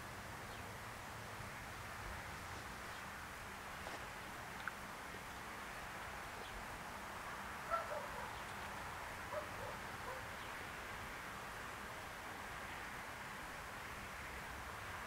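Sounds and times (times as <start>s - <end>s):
outdoor hiss: 0.0s - 15.0s.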